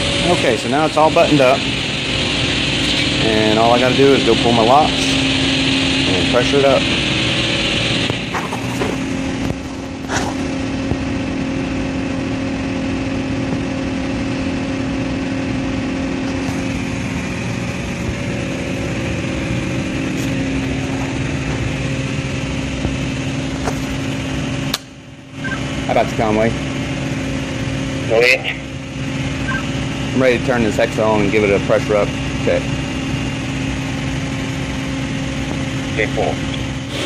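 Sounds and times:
industrial machinery droning: 0:00.0 - 0:37.0.

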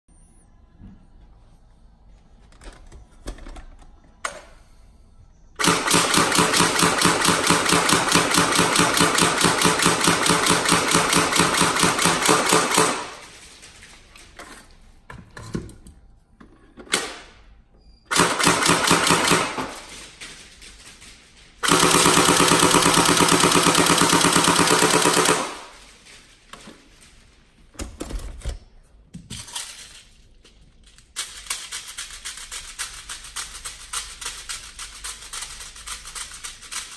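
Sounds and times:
airsoft gun firing automatic: 0:05.6 - 0:13.3, 0:18.1 - 0:19.9, 0:21.6 - 0:25.8.

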